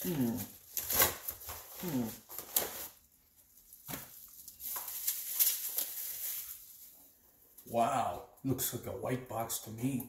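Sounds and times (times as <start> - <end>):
paper mailer and plastic crinkling: 0.0 - 7.0.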